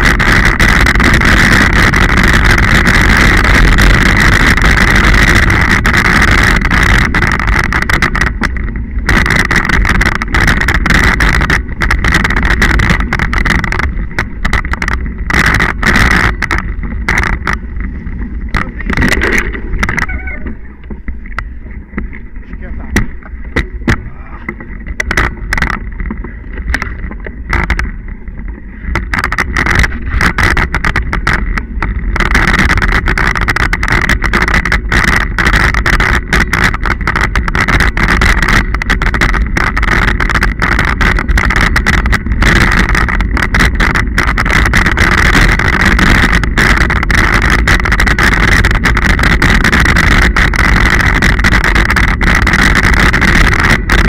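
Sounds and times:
bike knocks and rattles: 0:00.0 - 0:54.0
bike tyre rumble: 0:00.0 - 0:54.0
wind on microphone: 0:00.0 - 0:54.0.

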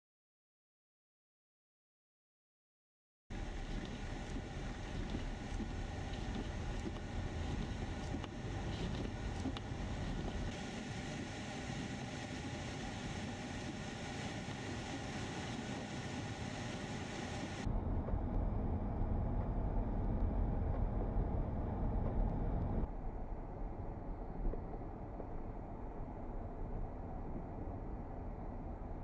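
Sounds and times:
deep rumble: 0:03.3 - 0:29.0
car road noise: 0:11.1 - 0:22.9.

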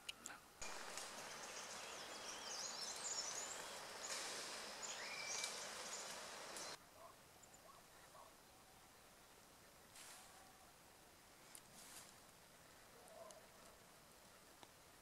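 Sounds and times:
steady outdoor hiss: 0:00.0 - 0:15.0
small birds chirping: 0:00.1 - 0:06.8.

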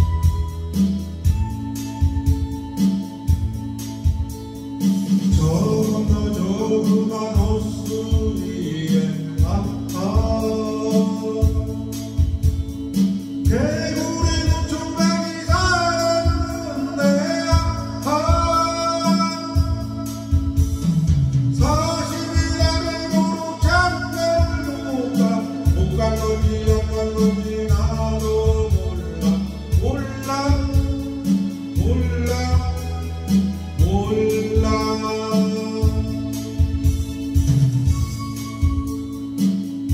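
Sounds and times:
backing track with beat and guitar: 0:00.0 - 0:39.9
man singing: 0:05.2 - 0:12.5, 0:13.4 - 0:20.9, 0:21.5 - 0:36.6.

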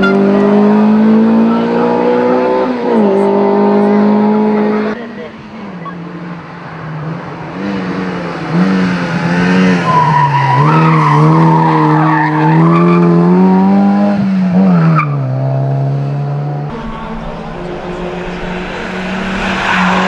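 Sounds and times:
race car engine revving: 0:00.0 - 0:05.0, 0:07.0 - 0:20.0.

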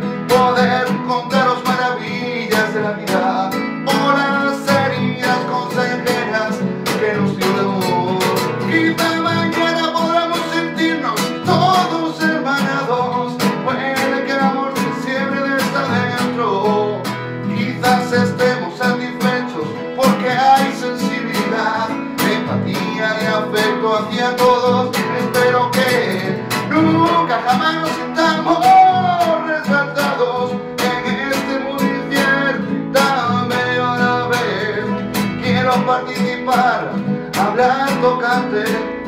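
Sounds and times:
classical guitar strummed: 0:00.0 - 0:39.0
man singing: 0:00.0 - 0:39.0.

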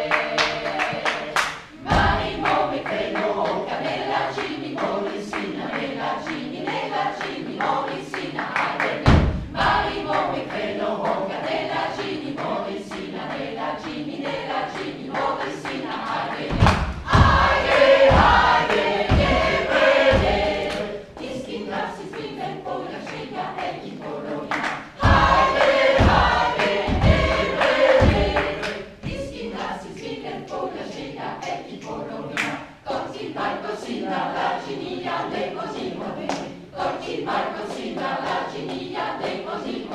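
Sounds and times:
choir singing: 0:00.0 - 0:39.9
low steady thump: 0:09.1 - 0:09.8, 0:16.5 - 0:21.4, 0:25.0 - 0:29.4.

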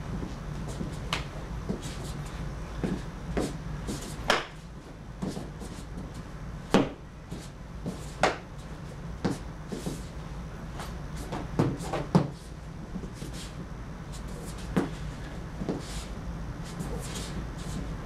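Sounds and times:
steady low hum: 0:00.0 - 0:18.0
feet stamping on mats: 0:00.1 - 0:10.2, 0:10.8 - 0:17.9
hand slaps and strikes: 0:04.3 - 0:04.6, 0:08.2 - 0:08.5.

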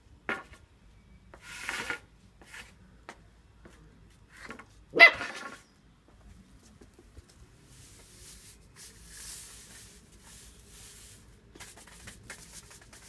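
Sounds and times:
broom scraping and rustling: 0:01.4 - 0:02.8, 0:07.3 - 0:13.0.

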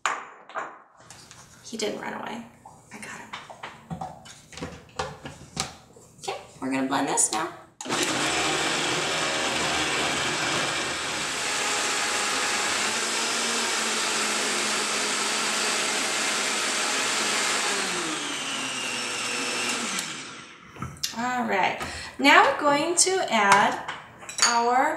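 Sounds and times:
blender motor running: 0:07.8 - 0:20.6.

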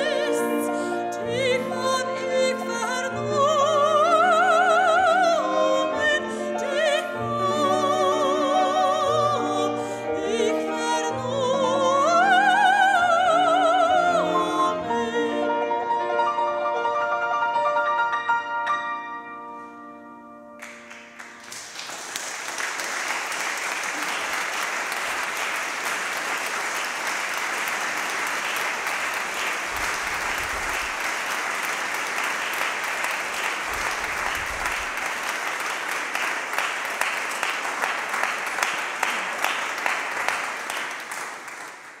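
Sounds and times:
audience applause: 0:20.6 - 0:42.0.

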